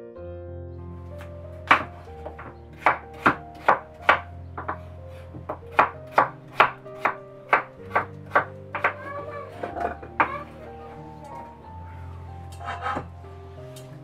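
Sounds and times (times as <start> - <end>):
background music: 0.0 - 14.0
knife chopping on wooden board: 1.7 - 9.1.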